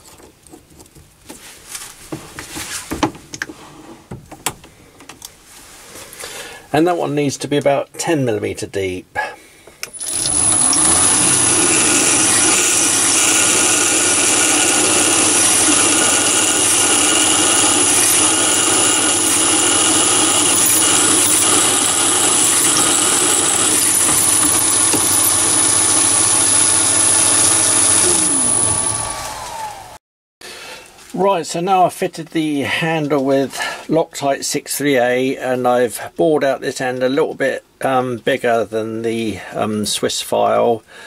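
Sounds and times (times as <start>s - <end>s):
lathe spindle winding down: 9.9s - 30.0s
lathe motor humming and whining: 10.0s - 30.0s.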